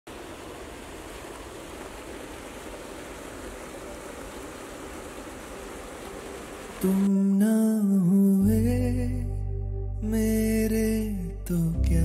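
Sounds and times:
water rushing over weir: 0.1s - 7.1s.

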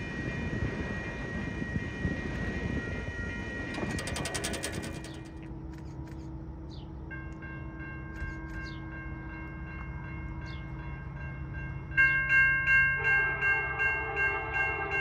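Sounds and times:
train wheels rumbling on rails: 0.0s - 15.0s
rapid clicking: 3.7s - 5.5s.

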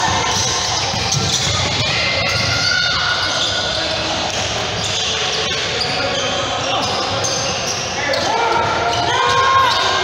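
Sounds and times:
players' voices in a hall: 0.0s - 10.0s
sneakers squeaking: 0.0s - 10.0s
basketball bouncing: 0.1s - 2.5s.

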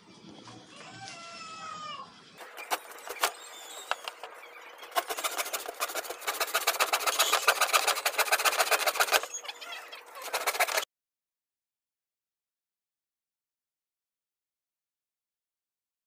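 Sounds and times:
hand saw cutting plywood: 2.4s - 9.4s, 10.1s - 10.8s.

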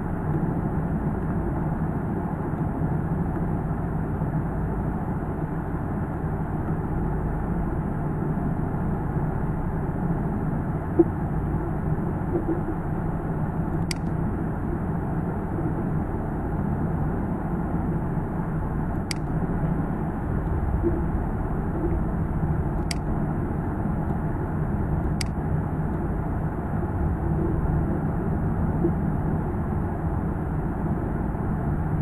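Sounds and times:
low background rumble: 0.0s - 32.0s
sharp click: 13.8s - 14.2s, 19.1s - 19.4s, 22.8s - 23.1s, 25.0s - 25.4s.

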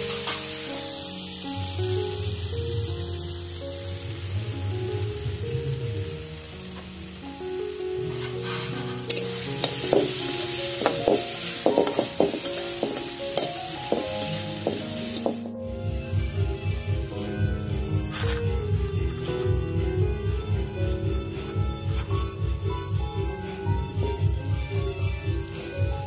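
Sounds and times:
fruit sizzling in oil: 0.0s - 26.0s
background music with beat: 4.8s - 26.0s
metal spatula scraping pan: 8.1s - 15.3s.

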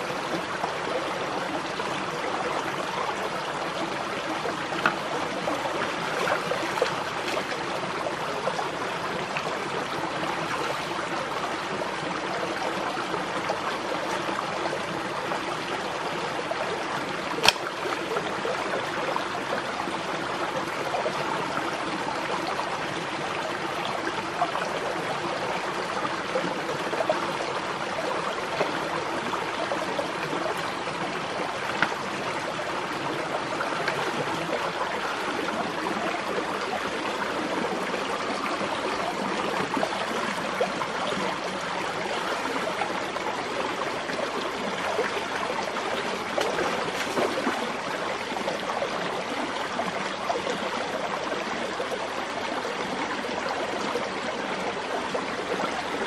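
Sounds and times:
stream water flowing: 0.0s - 56.0s.

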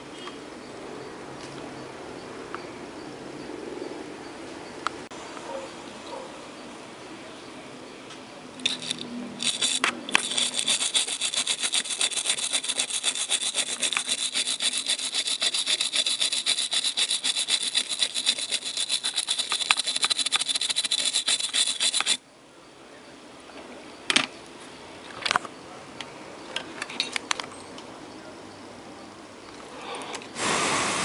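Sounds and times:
brush scrubbing a circuit board: 8.6s - 22.2s.

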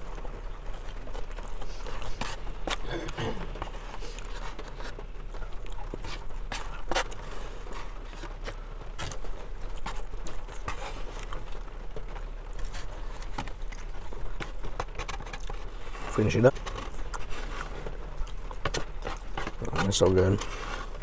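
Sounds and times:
chewing: 0.0s - 21.0s
plastic spoon scraping foam container: 12.7s - 18.0s, 18.6s - 21.0s.

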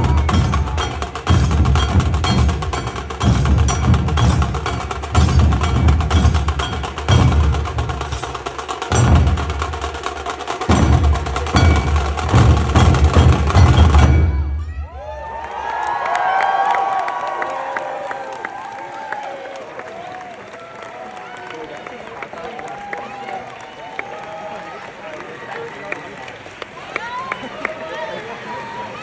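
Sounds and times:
percussion dance music: 0.0s - 15.5s.

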